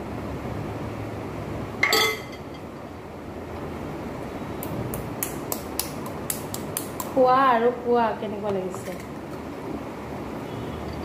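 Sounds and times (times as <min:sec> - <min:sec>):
low background hum: 0:00.0 - 0:11.0
metal ladle clinking glass bowl: 0:01.8 - 0:02.6.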